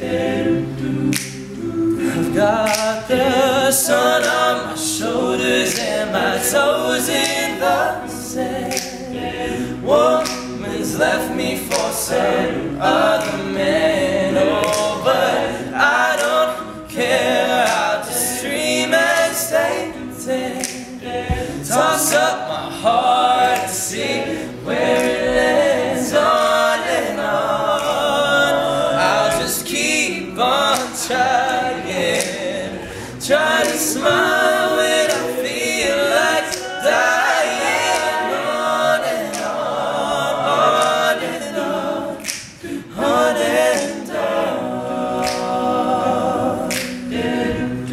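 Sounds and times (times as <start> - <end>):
male group singing in harmony: 0.0 - 47.9
sharp percussive clicks: 1.1 - 2.0, 2.6 - 3.1, 14.6 - 15.1, 42.2 - 42.7, 45.2 - 45.9, 46.6 - 47.1.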